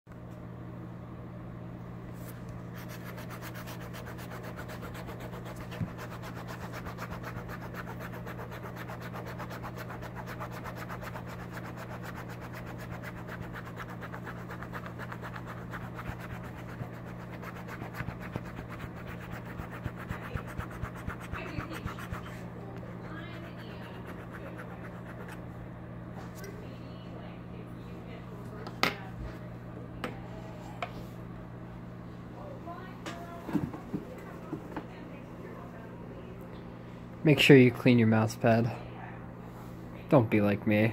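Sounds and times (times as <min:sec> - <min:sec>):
steady low hum: 0:00.1 - 0:40.9
knife scraping mouse pad: 0:02.8 - 0:22.4.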